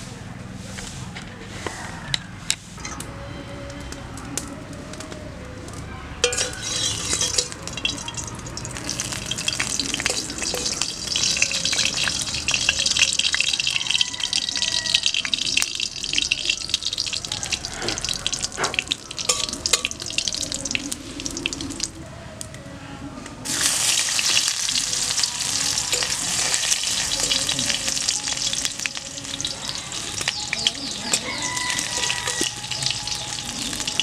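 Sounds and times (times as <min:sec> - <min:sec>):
chillies sizzling in hot oil: 0:06.2 - 0:22.0, 0:23.5 - 0:34.0.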